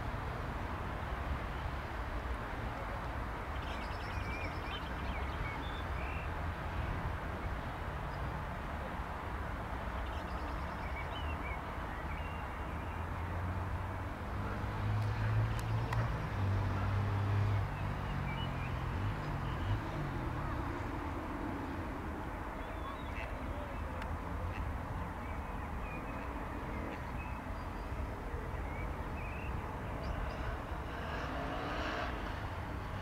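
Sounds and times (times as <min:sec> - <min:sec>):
birds chirping: 0:22.4 - 0:30.9.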